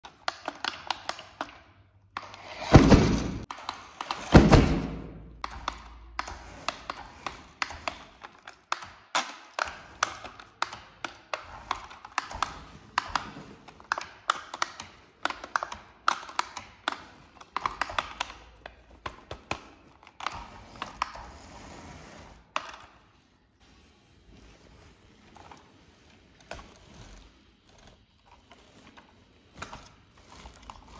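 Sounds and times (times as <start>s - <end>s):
loud plastic thunks: 2.6s - 3.5s, 4.1s - 5.4s.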